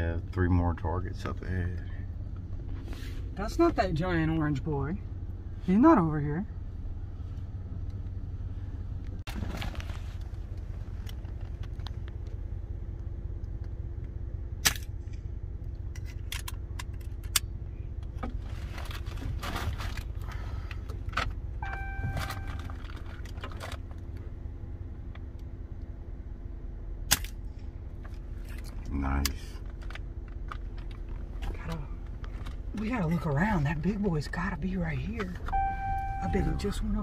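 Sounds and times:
truck engine drone: 0.0 - 37.0
sharp clicks and light rattles: 10.2 - 18.4, 27.1 - 33.0.

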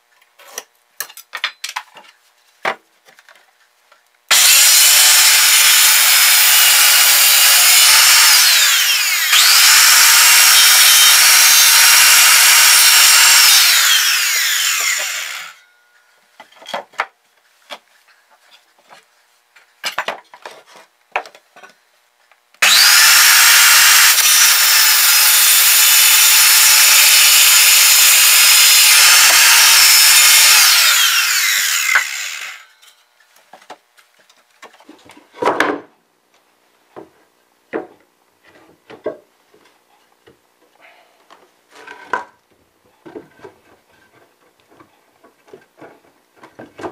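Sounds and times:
circular saw cutting wood: 4.3 - 15.7, 22.6 - 32.9.

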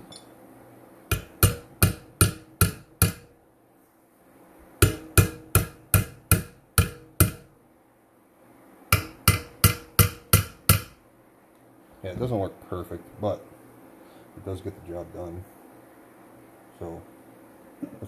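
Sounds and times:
hammer tapping metal: 1.1 - 3.3, 4.8 - 7.5, 8.9 - 11.0.

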